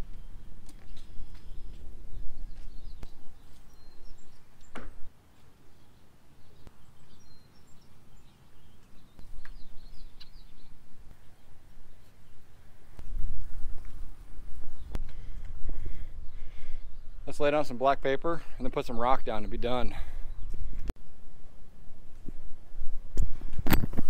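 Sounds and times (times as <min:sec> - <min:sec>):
wind gusting across microphone: 0:00.0 - 0:05.1, 0:09.2 - 0:17.7
birds chirping: 0:00.0 - 0:20.9.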